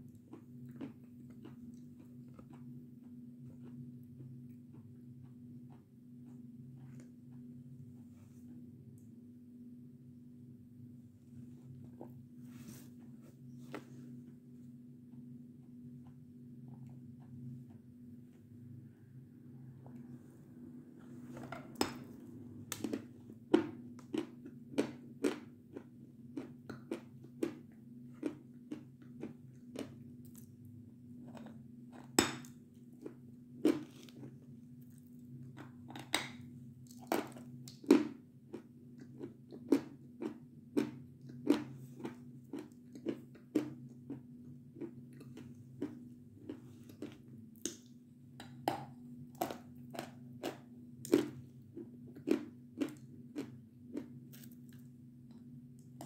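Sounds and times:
crunchy chewing of chalk: 0.0 - 7.5, 21.7 - 36.1, 36.8 - 47.9, 49.3 - 56.0.

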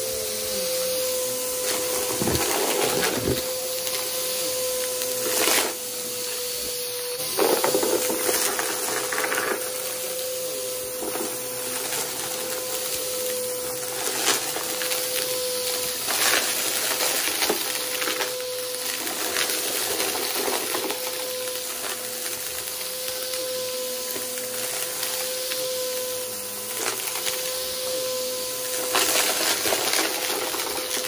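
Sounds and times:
vacuum cleaner running: 0.0 - 31.0
debris crunching and rattling: 2.0 - 3.4.

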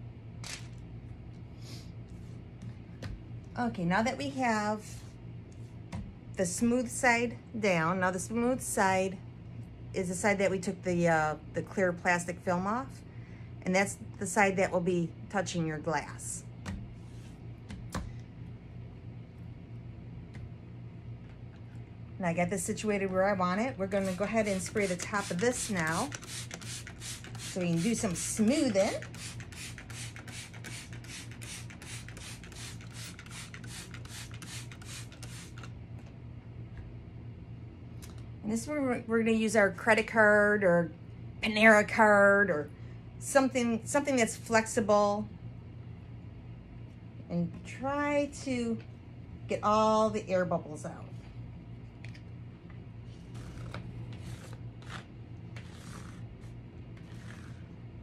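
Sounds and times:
spray bottle hissing sprays: 23.9 - 35.7.

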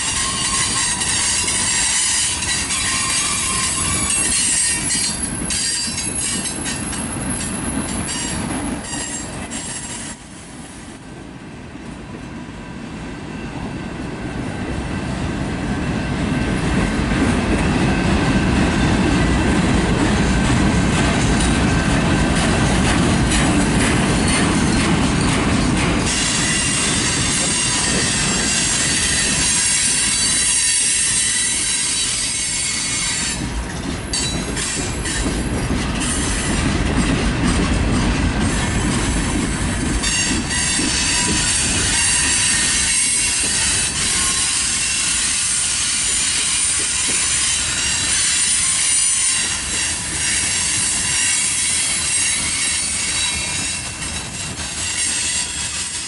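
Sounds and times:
wheel squeal: 0.0 - 10.2, 26.1 - 35.4, 40.0 - 56.0
train wheels rumbling on rails: 0.0 - 56.0.

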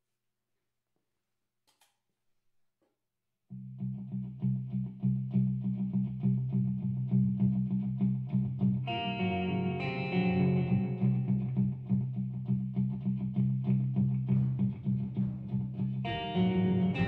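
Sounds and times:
electric guitar low riff: 3.5 - 17.0.

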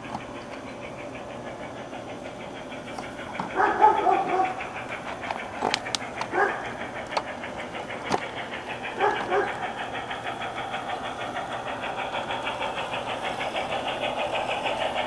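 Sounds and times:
dog barking: 3.6 - 4.6, 6.3 - 6.6, 9.0 - 9.6
sharp clicks: 4.9 - 9.3.

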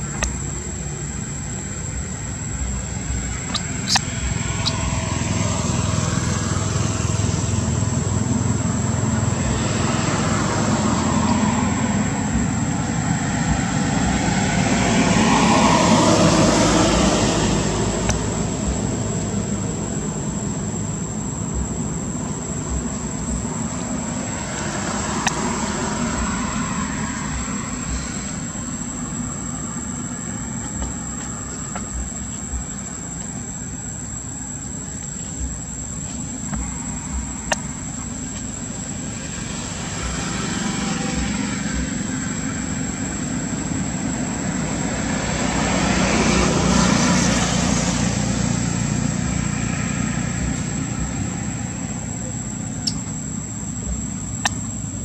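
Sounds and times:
outdoor rumble and hiss: 0.0 - 55.0
thin steady high tone: 10.2 - 45.8
faint sharp clicks: 54.4 - 54.6.

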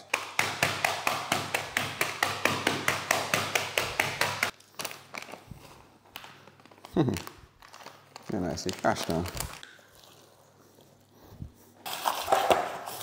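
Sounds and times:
nuts being pounded: 0.0 - 4.5.

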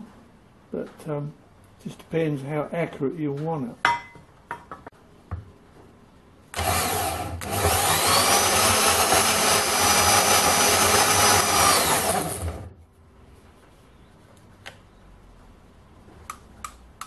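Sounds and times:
bandsaw cutting steel: 6.6 - 12.7.

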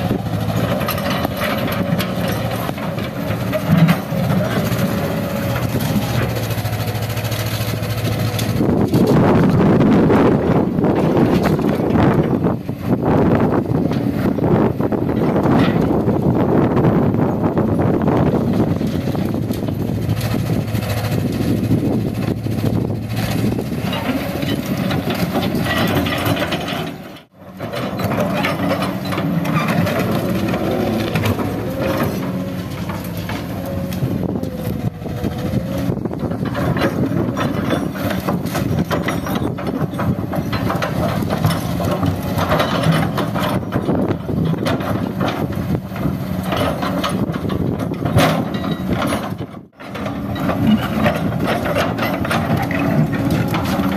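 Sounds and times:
excavator diesel engine: 0.0 - 53.9
steel bucket scraping concrete rubble: 18.6 - 53.9.

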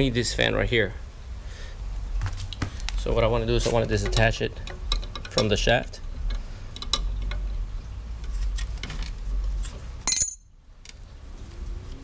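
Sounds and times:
wrench clanking on concrete: 10.0 - 10.5.

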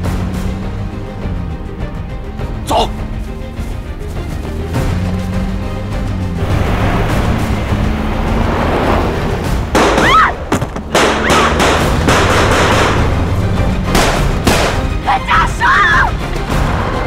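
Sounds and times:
tense film score: 0.0 - 17.0
voices crying out: 15.0 - 16.2.

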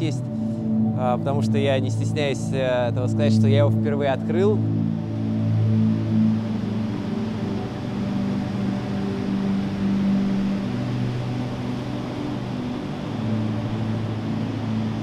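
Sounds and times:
ambient music with low chords: 0.0 - 15.0.

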